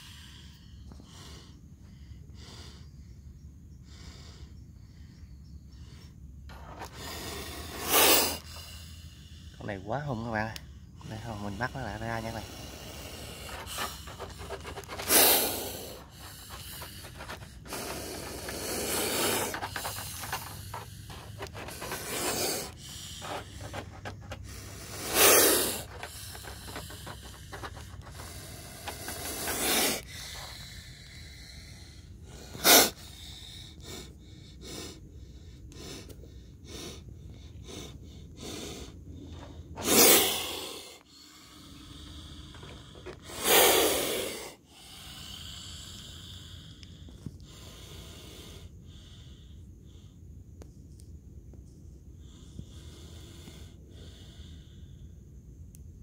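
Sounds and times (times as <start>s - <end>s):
snake hissing: 0.0s - 1.6s, 5.8s - 50.1s, 52.2s - 55.0s.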